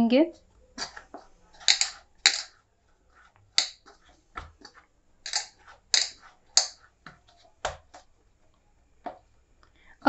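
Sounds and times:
plate knocking: 0:01.6 - 0:02.6, 0:05.3 - 0:06.8
dough slapping and squelching: 0:03.1 - 0:08.2.

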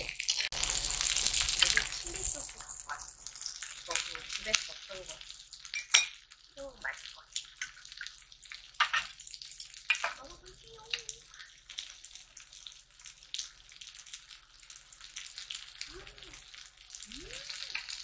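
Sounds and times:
utensils clicking against pan: 0:00.0 - 0:04.6
food sizzling on griddle pan: 0:00.0 - 0:18.0.

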